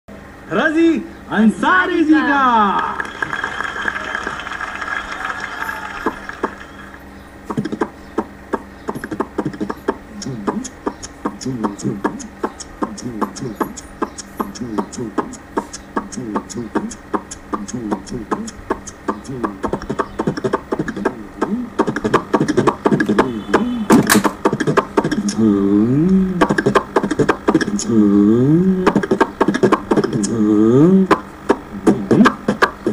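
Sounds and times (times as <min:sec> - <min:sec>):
wavering hummed tone: 0:05.6 - 0:32.9
beatboxing clicks and beats: 0:06.0 - 0:06.7, 0:07.4 - 0:32.9.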